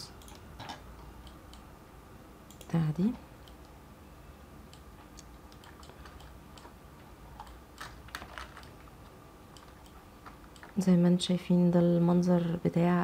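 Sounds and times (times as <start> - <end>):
keyboard and mouse clicks: 0.2 - 1.7, 4.7 - 8.9, 9.5 - 10.9.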